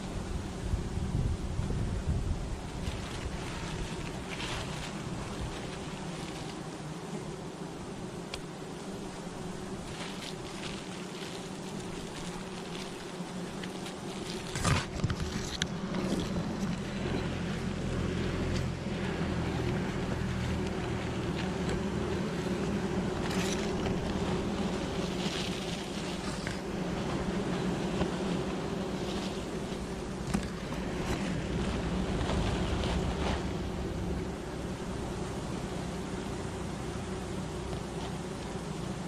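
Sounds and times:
honeybees buzzing: 0.0s - 39.0s
plastic bag crinkling: 2.7s - 6.6s, 9.8s - 17.1s, 20.3s - 33.7s.

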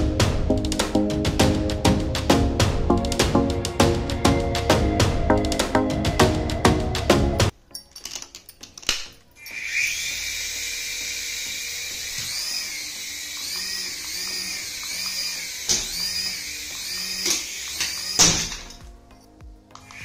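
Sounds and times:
toy helicopter motor whine: 9.4s - 18.8s.

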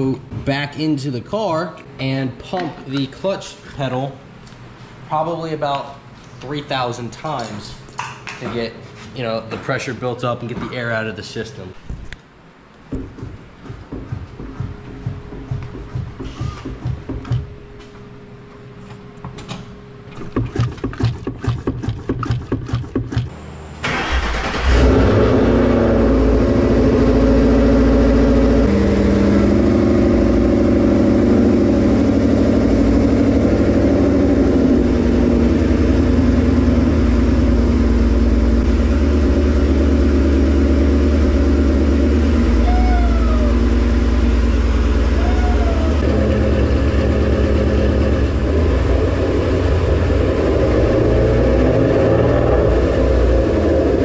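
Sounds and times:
car engine running: 23.8s - 54.0s.

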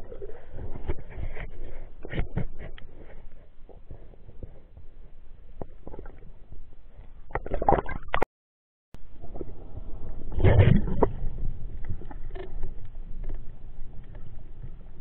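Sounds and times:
underwater gurgling and water rush: 7.2s - 8.2s, 9.0s - 15.0s
clicks and crackles: 10.5s - 15.0s.

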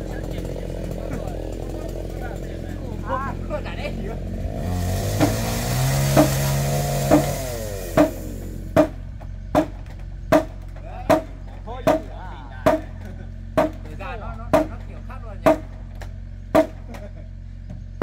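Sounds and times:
hammer blows on timber: 4.9s - 13.0s, 13.6s - 13.9s, 14.5s - 17.0s.

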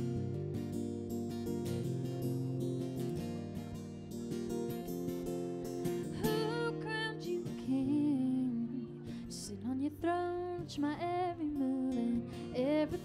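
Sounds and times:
acoustic guitar playing: 0.0s - 13.0s
woman singing: 6.0s - 13.0s.

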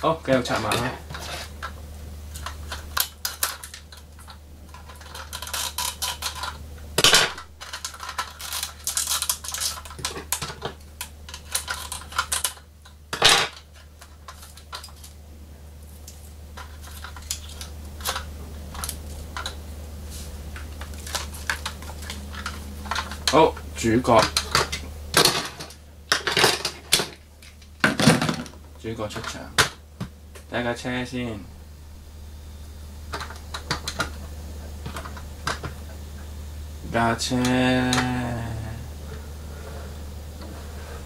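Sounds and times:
knife scraping toy packaging: 4.8s - 6.6s, 7.7s - 10.1s.

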